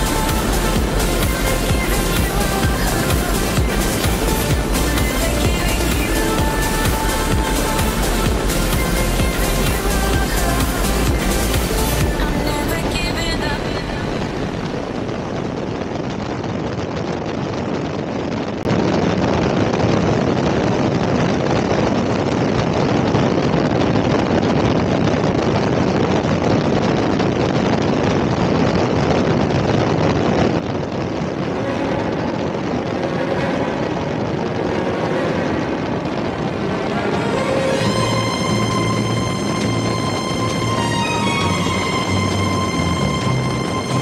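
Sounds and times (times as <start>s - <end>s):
road noise: 0.0s - 16.8s, 30.0s - 44.0s
wind rush: 0.0s - 44.0s.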